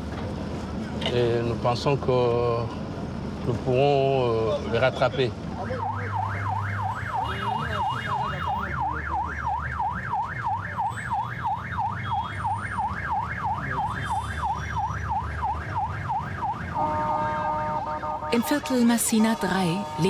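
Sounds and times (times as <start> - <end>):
vehicle engine rumble: 0.0 - 20.0
police siren yelping: 5.6 - 17.1.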